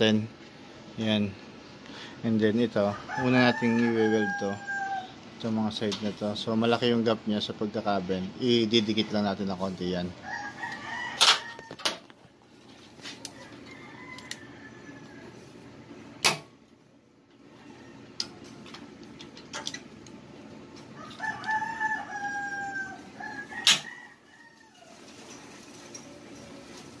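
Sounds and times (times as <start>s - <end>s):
rooster crowing: 2.8s - 5.2s, 10.2s - 12.1s, 13.2s - 15.6s, 17.4s - 18.5s, 20.8s - 25.8s.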